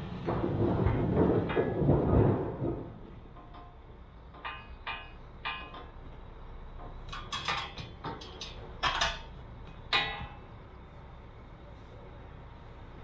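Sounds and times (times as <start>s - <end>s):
metal parts clinking and knocking: 3.4s - 6.1s, 6.7s - 10.5s.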